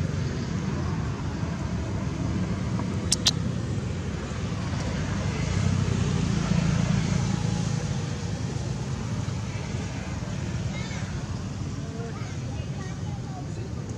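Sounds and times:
sharp clicks: 0:03.1 - 0:03.4.

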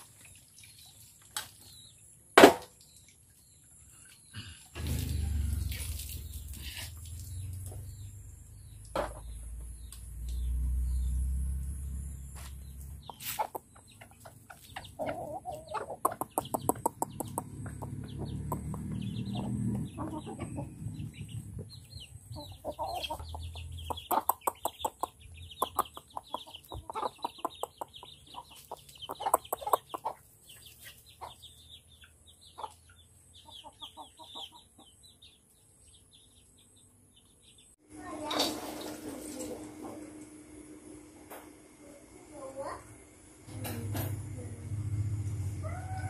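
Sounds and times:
chickens clucking: 0:12.3 - 0:35.6
chicks peeping: 0:12.3 - 0:37.7.

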